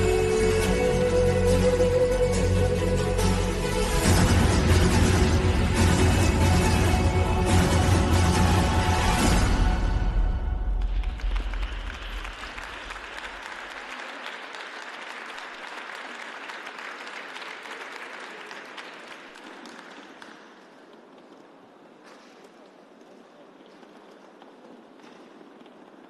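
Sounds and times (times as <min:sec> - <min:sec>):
music: 0:00.0 - 0:12.7
audience applauding: 0:10.5 - 0:21.1.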